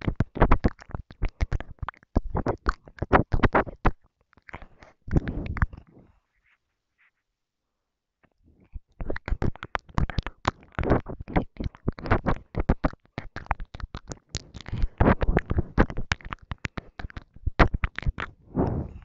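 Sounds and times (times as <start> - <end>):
wet mouth clicks and smacks: 0.0 - 5.8, 8.7 - 18.4
breathing: 4.5 - 6.4, 18.5 - 19.0.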